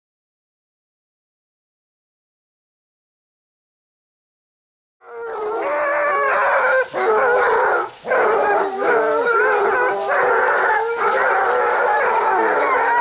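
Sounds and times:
hounds baying in chorus: 5.0s - 13.0s.

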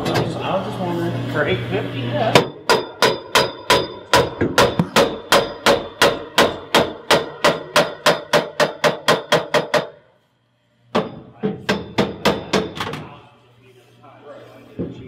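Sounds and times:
hammer striking metal tube: 2.4s - 10.0s, 10.9s - 12.9s.

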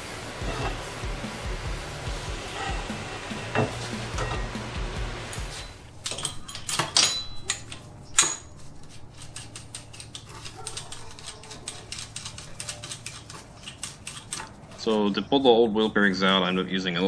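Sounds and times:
metal clanks: 2.6s - 8.6s.

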